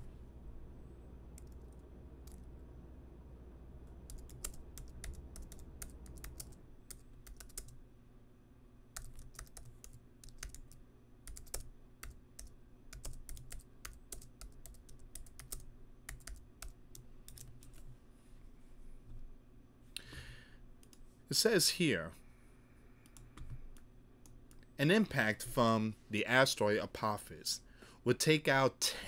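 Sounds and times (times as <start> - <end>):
computer keyboard typing: 1.4 - 2.6, 3.8 - 7.8, 9.0 - 17.8.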